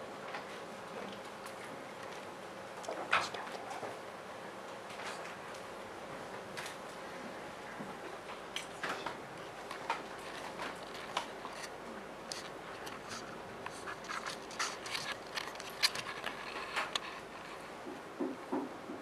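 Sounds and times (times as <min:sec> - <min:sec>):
faint room hum: 0:00.0 - 0:19.0
people handling things: 0:04.7 - 0:18.7.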